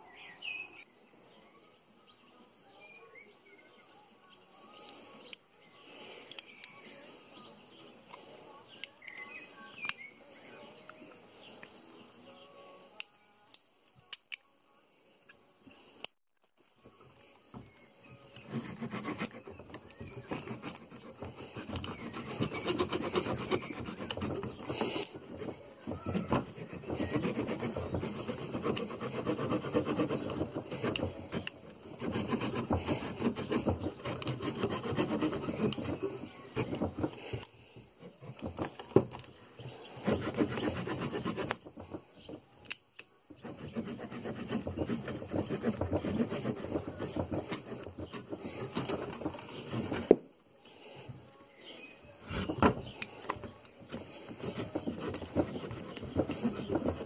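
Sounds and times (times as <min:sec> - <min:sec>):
saw cutting wooden branch: 0:16.8 - 0:50.2, 0:52.2 - 0:57.0.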